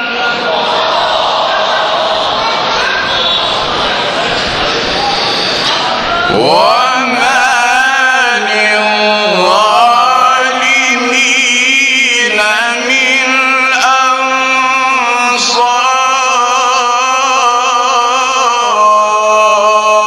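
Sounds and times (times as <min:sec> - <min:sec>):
man reciting melodically: 0:00.0 - 0:02.4, 0:06.2 - 0:20.0.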